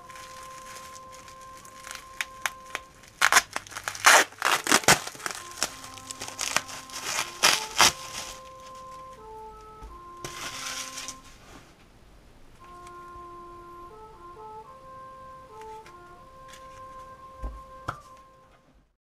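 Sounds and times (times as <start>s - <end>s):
plastic packaging crinkling: 0.0s - 9.2s, 10.2s - 11.5s
background music: 0.0s - 11.6s, 12.5s - 18.9s.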